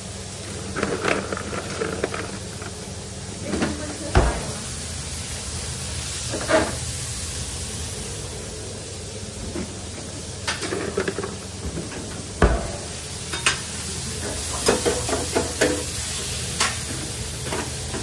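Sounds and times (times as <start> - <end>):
low hum of kitchen equipment: 0.0 - 18.0
frozen fries rattling into basket: 0.5 - 2.9.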